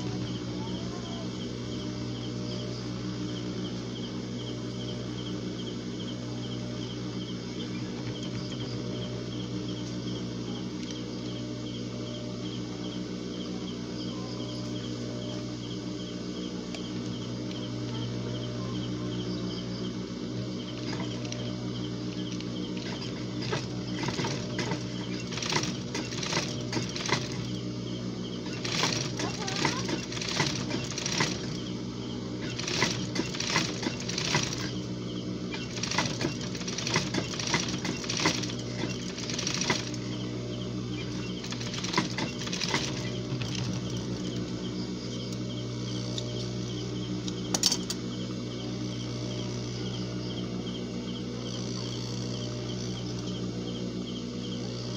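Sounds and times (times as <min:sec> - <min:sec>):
sewing machine motor humming: 0:00.0 - 0:12.2, 0:14.5 - 0:54.9
sewing machine stitching: 0:20.7 - 0:21.5, 0:22.1 - 0:27.7, 0:28.4 - 0:40.2, 0:40.9 - 0:44.4.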